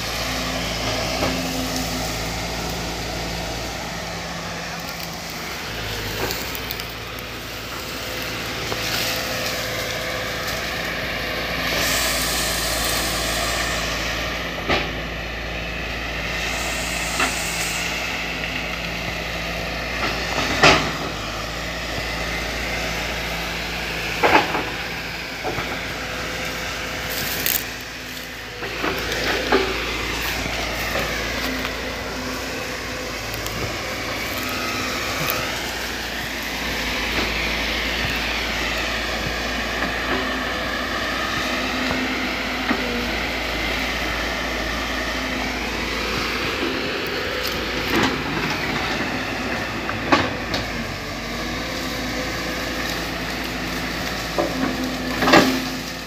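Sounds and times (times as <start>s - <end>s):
excavator engine and hydraulics: 0.0s - 56.0s
cracks and knocks of brush: 4.1s - 10.8s, 19.9s - 21.2s, 24.0s - 40.4s, 46.2s - 56.0s.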